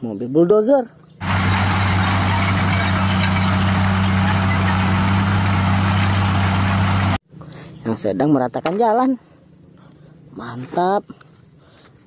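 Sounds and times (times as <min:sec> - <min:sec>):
bulldozer diesel engine running: 0:01.2 - 0:07.2.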